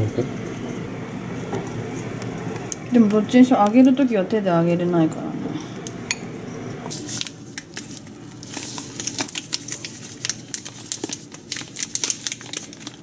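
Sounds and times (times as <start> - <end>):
foil bag crinkling: 6.9 - 13.0.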